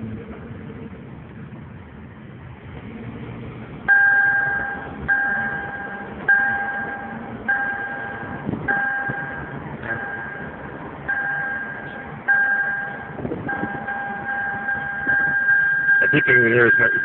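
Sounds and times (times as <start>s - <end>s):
engine and road hum in car: 0.0s - 17.0s
seatbelt reminder chime: 11.1s - 17.0s.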